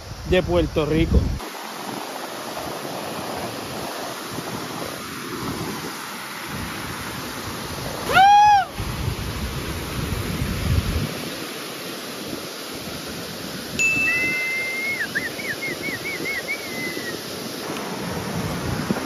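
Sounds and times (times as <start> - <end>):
river water rushing: 1.4 - 19.0
whistle-like call: 13.8 - 17.2.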